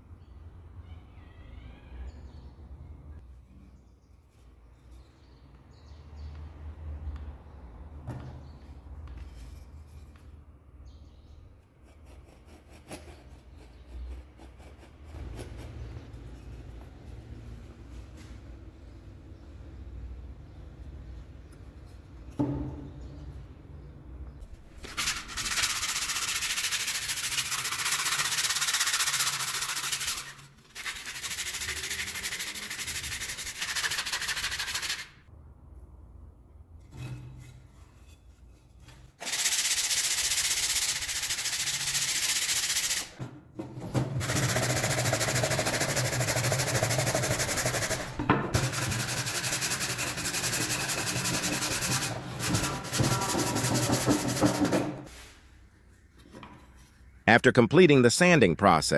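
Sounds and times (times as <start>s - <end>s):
sanding pad rubbing wood: 24.8s - 35.1s, 44.2s - 55.3s.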